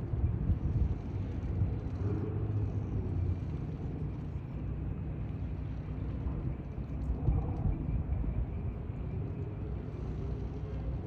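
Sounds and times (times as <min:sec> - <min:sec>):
low diesel engine rumble: 0:00.0 - 0:07.0.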